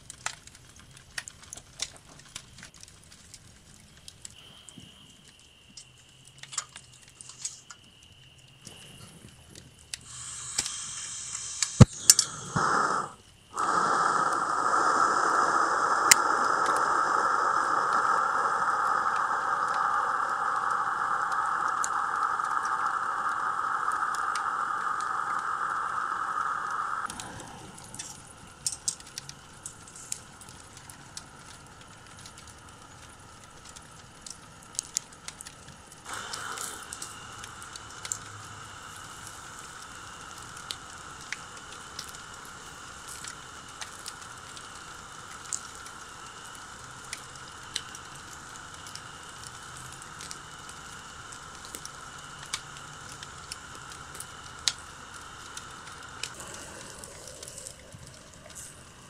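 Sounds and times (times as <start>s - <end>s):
faint ticks and crackles: 0.0s - 59.0s
gas lantern hissing: 4.1s - 59.0s
sharp ignition click: 10.1s - 30.2s.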